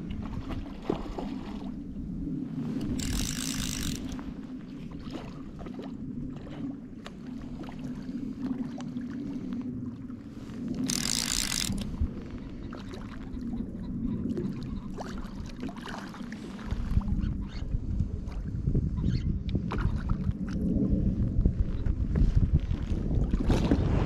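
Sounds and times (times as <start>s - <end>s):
wind: 0.0s - 24.0s
fishing reel clicks: 2.8s - 4.2s, 10.8s - 11.9s
water lapping: 3.0s - 17.6s.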